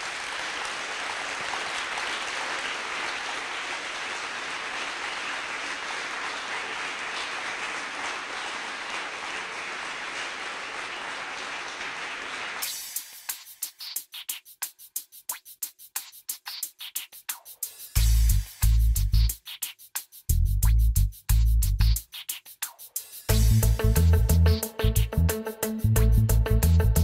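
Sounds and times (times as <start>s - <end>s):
audience applauding: 0.0s - 12.8s.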